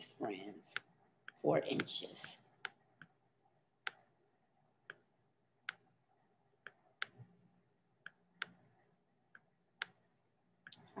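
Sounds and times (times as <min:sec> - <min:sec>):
computer mouse clicks: 0:00.7 - 0:03.2, 0:03.8 - 0:04.1, 0:04.8 - 0:05.9, 0:06.6 - 0:07.3, 0:08.0 - 0:08.6, 0:09.3 - 0:10.0.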